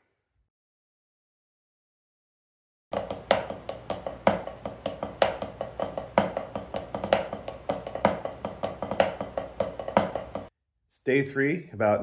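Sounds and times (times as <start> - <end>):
drumsticks tapping practice pad: 2.9 - 10.5.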